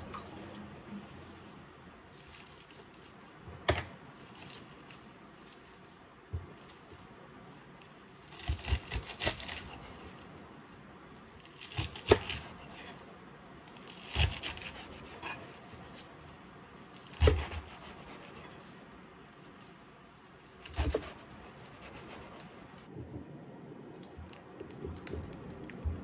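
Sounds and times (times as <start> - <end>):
knife cutting crunchy spinach: 8.2 - 10.1, 11.4 - 13.0, 13.7 - 16.1, 17.0 - 18.5, 20.5 - 22.5.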